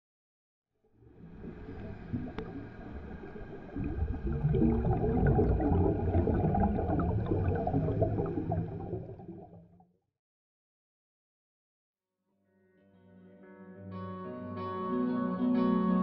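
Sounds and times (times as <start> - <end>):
underwater bubbling and gurgling: 1.0 - 9.8
low rumble: 1.1 - 9.5.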